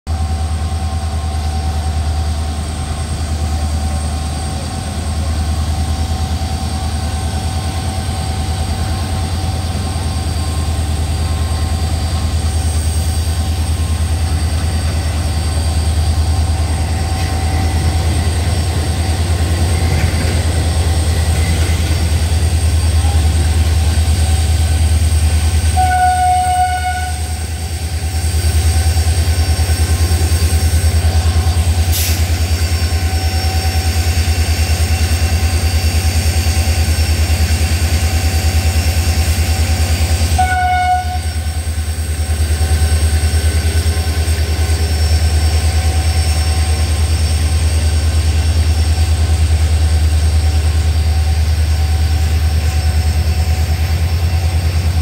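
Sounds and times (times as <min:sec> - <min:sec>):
diesel locomotive chugging: 0:00.1 - 0:55.0
train horn: 0:25.6 - 0:27.6, 0:40.3 - 0:41.6.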